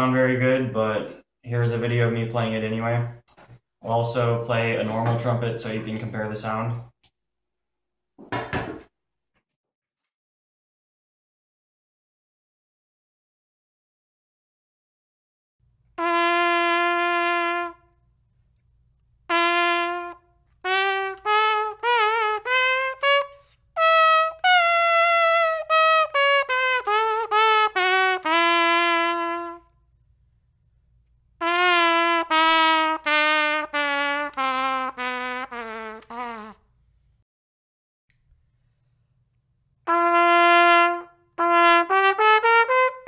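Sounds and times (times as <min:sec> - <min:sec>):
plastic trumpet playing: 0:16.0 - 0:18.0, 0:19.3 - 0:29.8, 0:31.4 - 0:36.6, 0:39.9 - 0:43.0.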